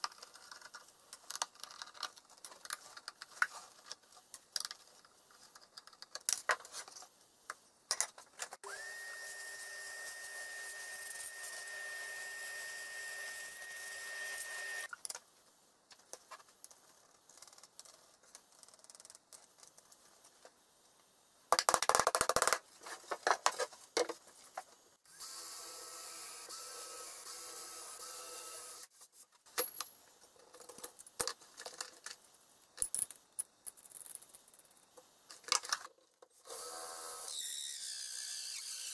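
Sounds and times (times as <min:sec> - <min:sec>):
small electric motor whine: 0:08.6 - 0:14.9, 0:25.1 - 0:28.9, 0:36.4 - 0:38.9.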